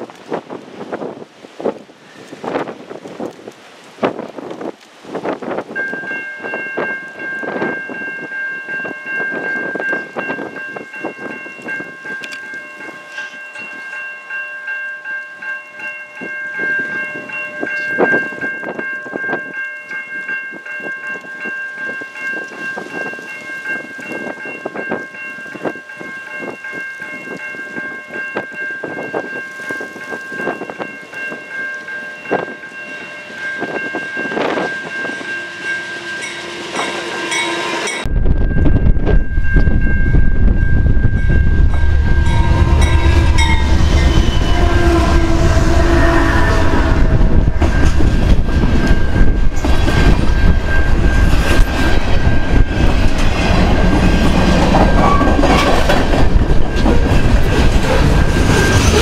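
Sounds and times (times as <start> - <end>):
wind buffeting microphone: 0.0 - 12.3, 32.2 - 35.4, 37.9 - 59.0
train wheels on rails: 15.3 - 59.0
diesel locomotives rumbling: 29.9 - 59.0
steady high tone: 30.4 - 53.2.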